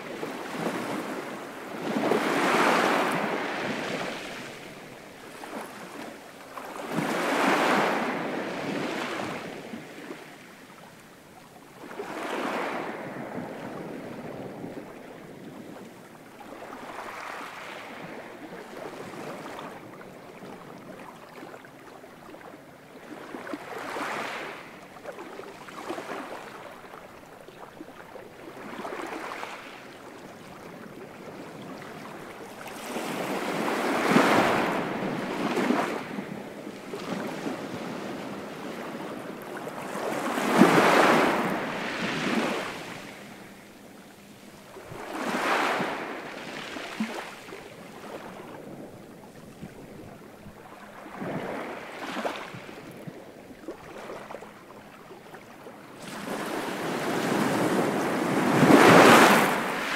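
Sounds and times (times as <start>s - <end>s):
sea waves washing in: 31.4s - 54.7s, 55.9s - 59.9s.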